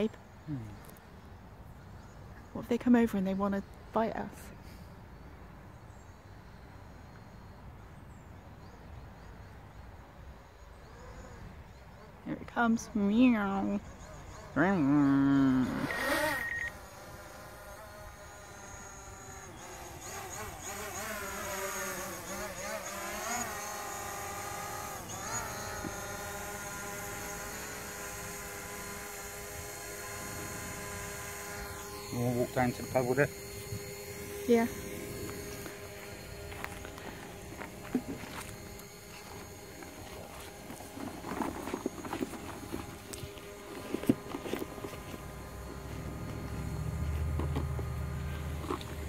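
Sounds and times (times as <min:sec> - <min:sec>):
drone propellers buzzing: 0:14.6 - 0:49.0.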